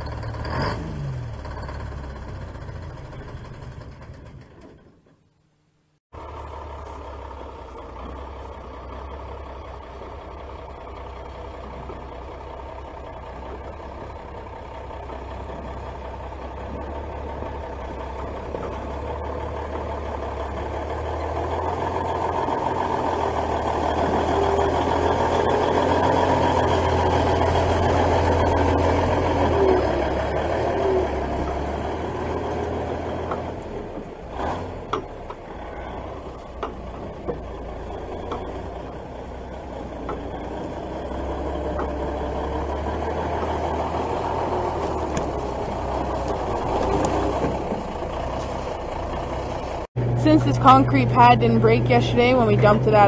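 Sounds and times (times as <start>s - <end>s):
diesel engine running: 0.0s - 5.1s, 6.1s - 53.0s
sharp knocks and clicks: 36.5s - 37.6s.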